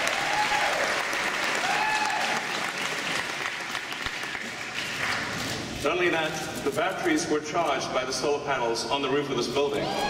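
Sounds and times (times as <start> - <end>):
people whooping and cheering: 0.0 - 2.7, 9.7 - 10.0
audience clapping: 0.0 - 5.7.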